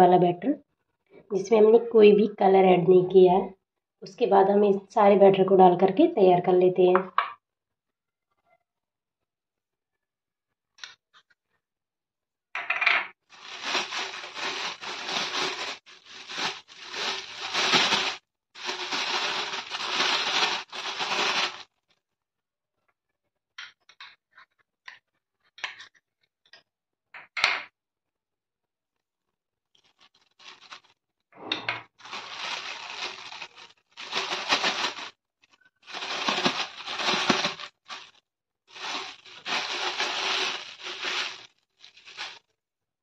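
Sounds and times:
plastic pouch crinkling: 13.3 - 21.8, 29.8 - 31.0, 32.0 - 35.2, 35.8 - 42.5.

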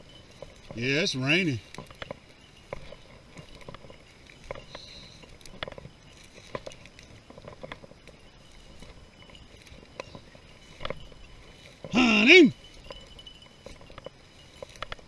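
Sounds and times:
footsteps through dry grass: 0.0 - 15.0.

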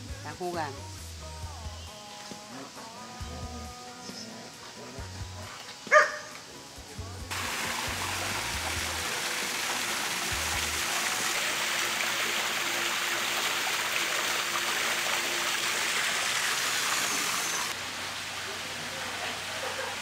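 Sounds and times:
running water rushing: 5.6 - 20.0.

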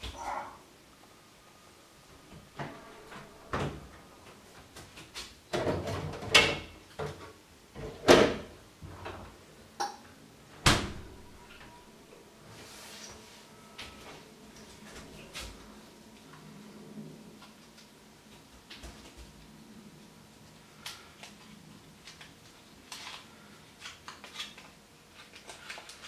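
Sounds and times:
refrigerator door opening and shutting: 2.5 - 4.0, 7.8 - 9.4, 10.5 - 11.8.

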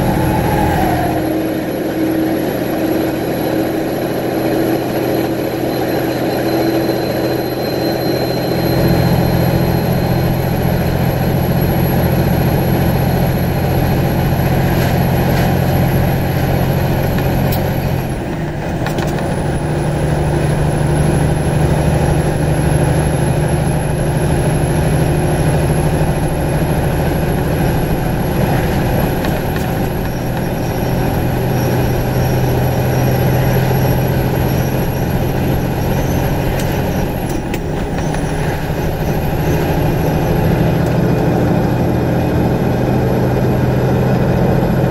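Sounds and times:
diesel truck engine under load: 0.0 - 44.9
truck gear change: 27.0 - 41.8.

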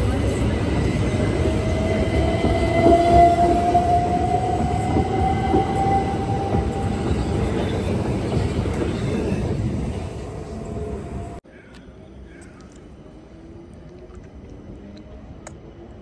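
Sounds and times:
train wheels rumbling on track: 0.0 - 11.4.

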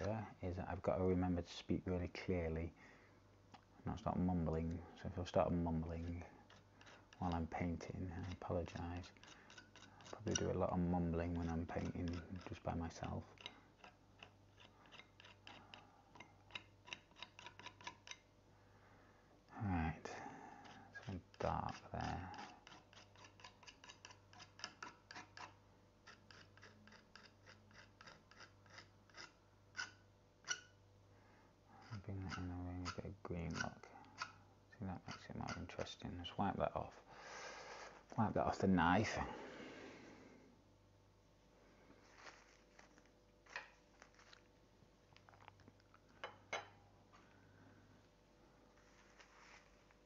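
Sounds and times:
palette knife scraping paint: 4.5 - 18.3, 20.6 - 30.8, 31.8 - 34.4
painting tools rustling on wooden table: 41.8 - 44.6, 48.6 - 50.0.

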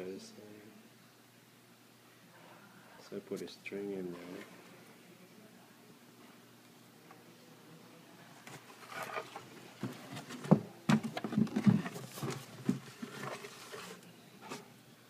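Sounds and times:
paper rustling: 8.5 - 14.6
scrapes and knocks: 8.5 - 14.6.

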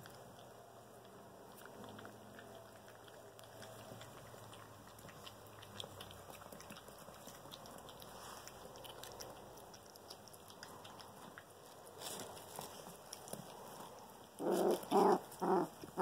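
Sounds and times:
puppy chewing: 0.0 - 16.0.

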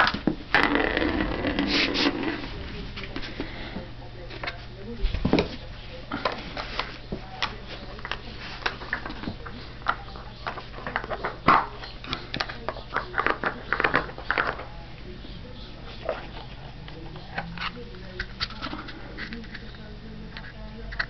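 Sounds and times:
dog chewing plastic cap: 6.2 - 14.7.

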